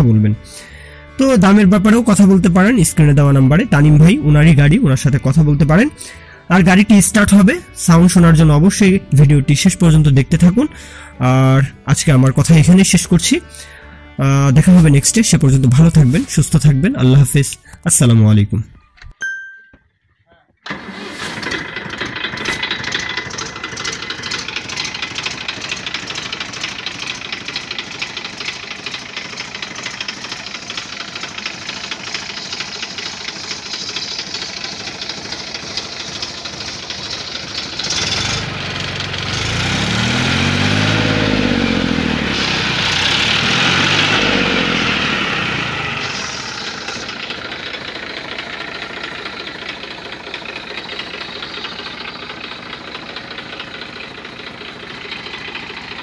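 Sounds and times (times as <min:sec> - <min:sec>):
tractor diesel engine idling: 0:00.0 - 0:18.2, 0:20.6 - 0:56.0
engine revving: 0:20.7 - 0:56.0.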